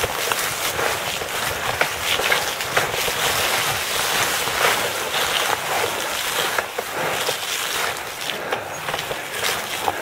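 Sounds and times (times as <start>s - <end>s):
bike clicks and knocks: 0.0s - 10.0s
grass and brush rustling: 0.0s - 10.0s.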